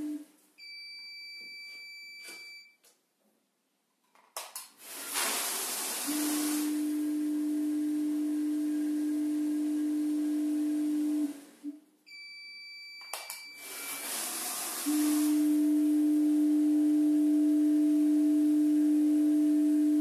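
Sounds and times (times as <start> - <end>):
machine feeder humming: 0.0 - 0.3, 5.8 - 11.8, 13.6 - 20.0.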